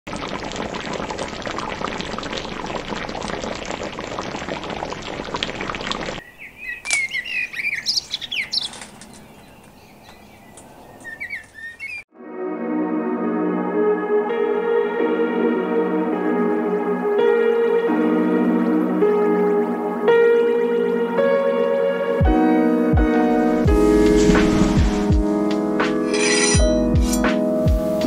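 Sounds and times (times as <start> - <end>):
stew bubbling in a pan: 0.1 - 6.4
birds chirping: 6.2 - 12.1.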